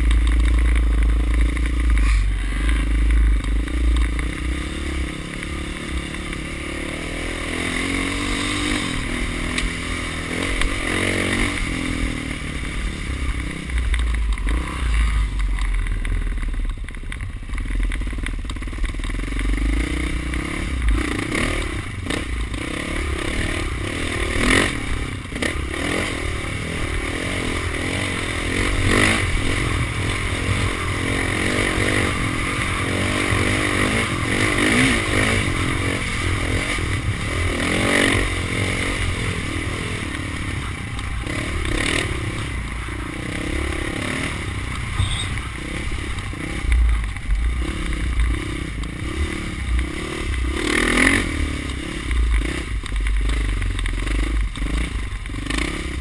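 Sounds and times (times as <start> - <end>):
bike knocking and rattling over bumps: 0.0 - 56.0
dirt bike engine running: 0.0 - 56.0
low wind rumble: 0.0 - 56.0.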